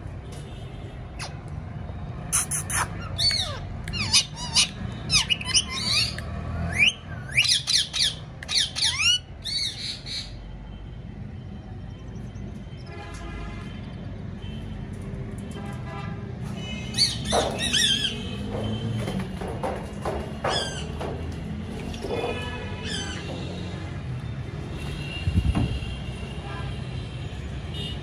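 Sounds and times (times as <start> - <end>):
parrot squawking: 2.3 - 9.8, 22.8 - 23.2.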